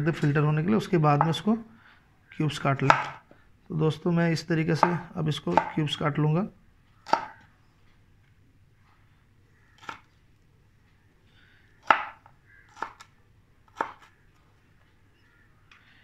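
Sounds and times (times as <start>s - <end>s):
knife chopping on wooden board: 2.8s - 3.2s, 4.8s - 5.9s, 7.1s - 7.4s, 11.8s - 13.0s, 13.7s - 14.1s.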